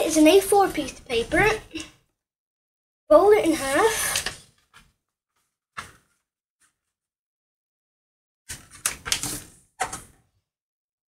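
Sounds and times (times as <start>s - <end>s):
paper rustling and creasing: 8.5s - 10.0s.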